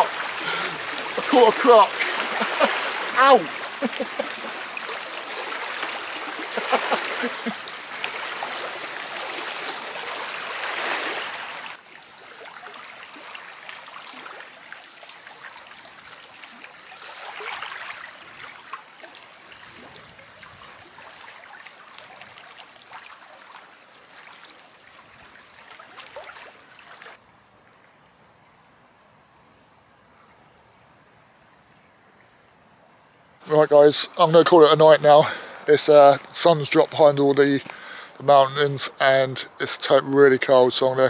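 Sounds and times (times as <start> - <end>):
water lapping over stones: 0.0 - 27.2.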